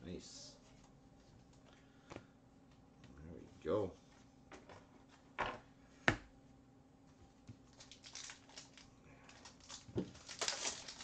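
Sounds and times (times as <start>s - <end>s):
foil wrapper crinkling: 7.6s - 11.0s.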